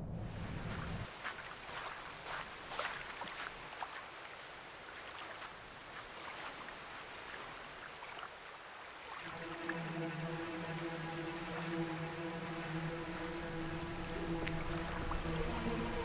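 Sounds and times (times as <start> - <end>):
low droning tone: 0.0 - 1.1, 9.3 - 16.0
moving water: 0.0 - 16.0
wind: 0.0 - 16.0.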